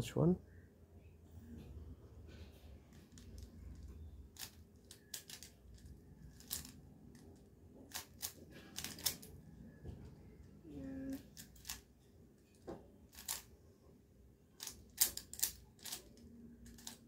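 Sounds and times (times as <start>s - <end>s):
puzzle cube layers clicking: 3.1s - 7.3s, 14.6s - 17.0s.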